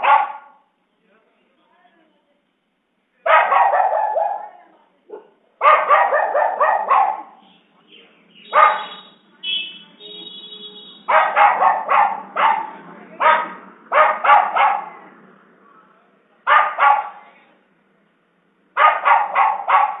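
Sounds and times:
dogs barking: 0.0 - 0.6, 3.3 - 7.4, 8.4 - 9.1, 11.0 - 15.1, 16.4 - 17.3, 18.8 - 20.0.

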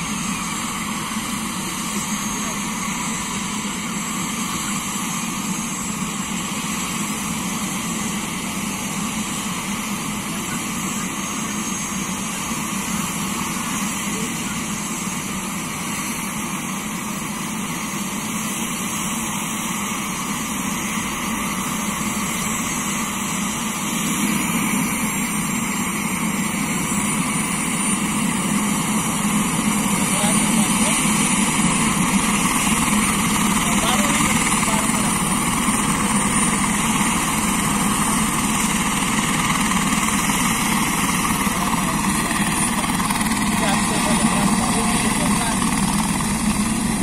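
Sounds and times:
helicopter turbine whine: 0.0 - 47.0.

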